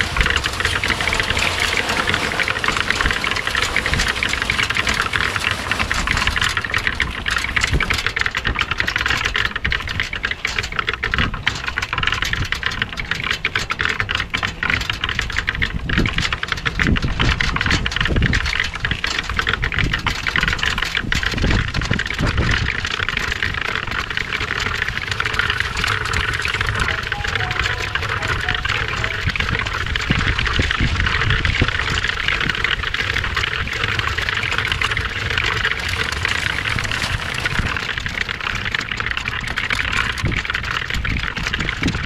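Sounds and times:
mixer motor drone: 0:00.0 - 0:09.7, 0:21.7 - 0:42.0
gravel tumbling in mixer drum: 0:00.0 - 0:42.0.

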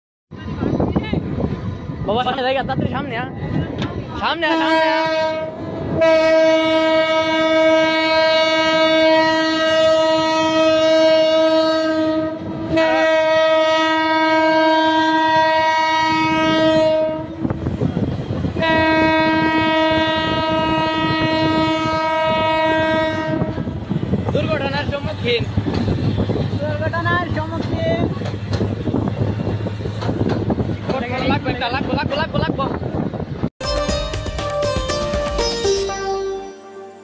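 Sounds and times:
train rumble and wheel clatter: 0:00.3 - 0:37.0
locomotive air horn blasts: 0:04.5 - 0:17.5, 0:18.6 - 0:23.8.

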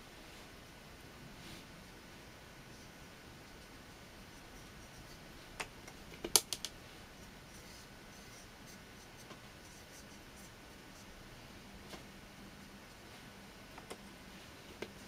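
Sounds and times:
paintbrush brushing on paper: 0:02.7 - 0:05.6, 0:06.9 - 0:11.2.

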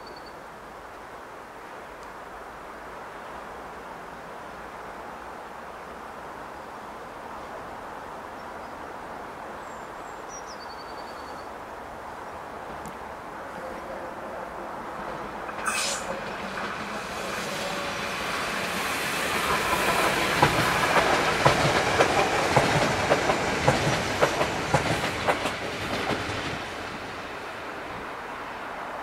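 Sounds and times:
train running rumble: 0:13.5 - 0:28.1
wheels clicking over rail joints: 0:19.5 - 0:26.6.

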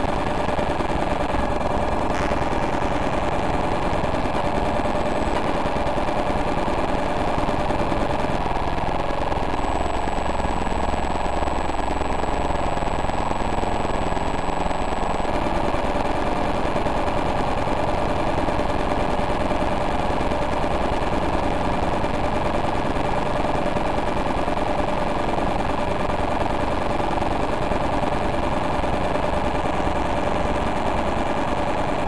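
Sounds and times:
rapid pulsing buzz: 0:00.0 - 0:32.0.

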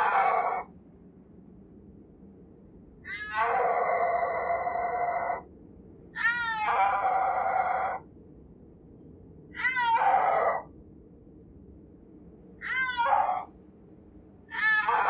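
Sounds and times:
snow leopard yowling: 0:00.0 - 0:00.7, 0:03.1 - 0:05.4, 0:06.2 - 0:08.0, 0:09.6 - 0:10.7, 0:12.6 - 0:13.5, 0:14.5 - 0:15.0.

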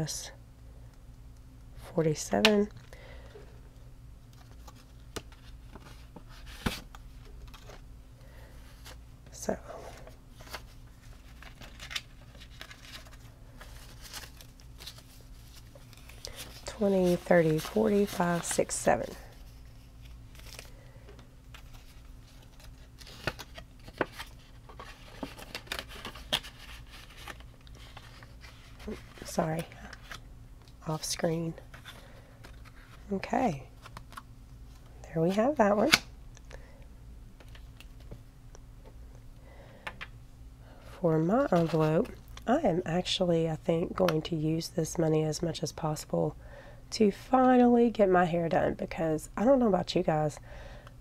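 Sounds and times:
paper rustling: 0:10.4 - 0:20.8, 0:21.5 - 0:30.2, 0:41.4 - 0:41.9.

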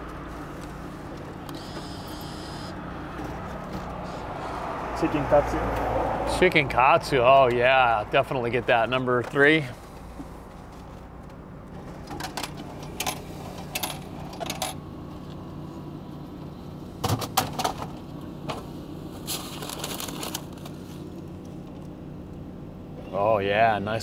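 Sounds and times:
plastic packaging rustle: 0:19.2 - 0:21.1.

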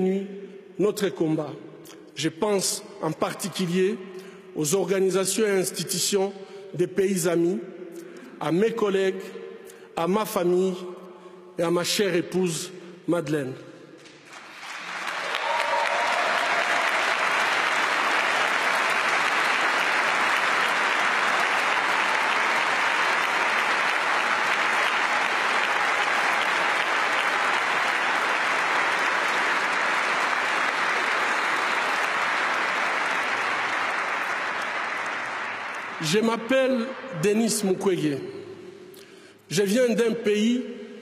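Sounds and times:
large audience applauding: 0:14.0 - 0:37.0.

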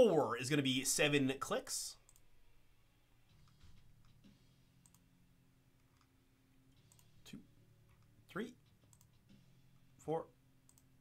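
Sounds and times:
computer mouse clicks: 0:02.0 - 0:02.3, 0:04.8 - 0:05.1, 0:05.8 - 0:06.1, 0:06.8 - 0:07.2, 0:08.9 - 0:09.2, 0:10.6 - 0:10.9.

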